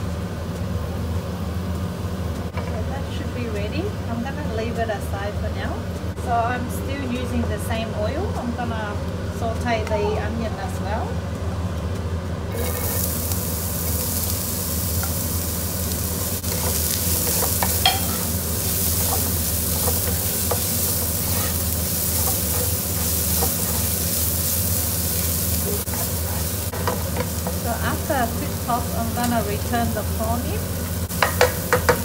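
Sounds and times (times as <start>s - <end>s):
onion sizzling in oil: 12.5s - 32.0s
wooden spatula scraping pan: 16.2s - 28.0s.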